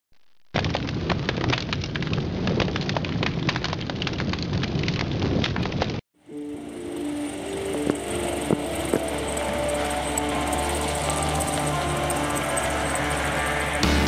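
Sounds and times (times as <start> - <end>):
fire crackling and popping: 0.1 - 14.0
steady noise: 6.2 - 14.0.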